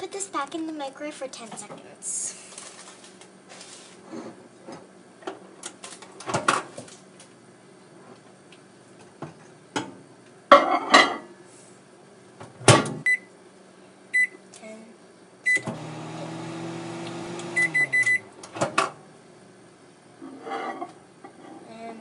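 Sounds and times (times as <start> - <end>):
microwave oven humming: 0.0 - 22.0
microwave keypad beeps: 13.1 - 13.3, 14.2 - 14.4, 15.5 - 15.7, 17.6 - 18.2.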